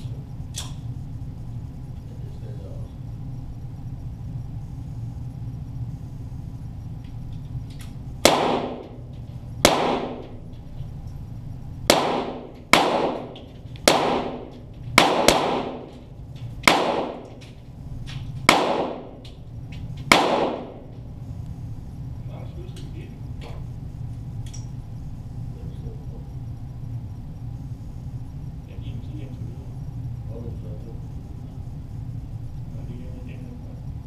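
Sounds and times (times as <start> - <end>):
pistol shots echoing: 8.2 - 9.0, 9.6 - 10.4, 11.9 - 16.0, 16.6 - 17.4, 18.5 - 19.2, 20.1 - 20.9.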